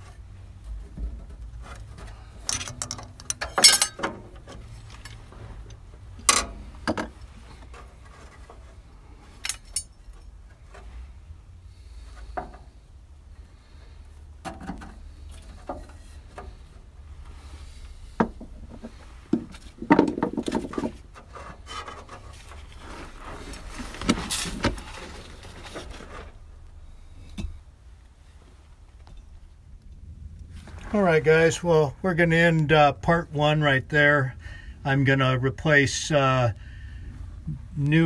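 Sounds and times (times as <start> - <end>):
steady low hum: 0.0 - 38.0
tools clicking and tapping: 2.5 - 4.1
rubbing and knocking: 18.1 - 26.5.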